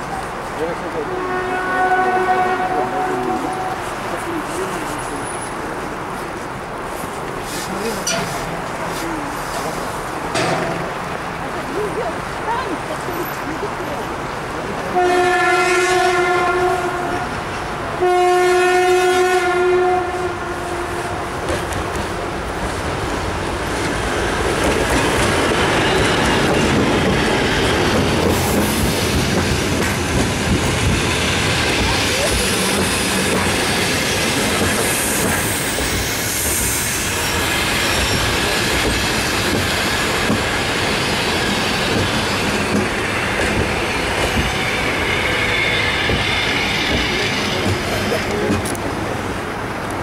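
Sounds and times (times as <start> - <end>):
diesel locomotive passing: 0.0 - 50.0
train coaches rumbling past: 0.0 - 50.0
high squeal of train brakes: 35.0 - 38.7, 44.5 - 47.6.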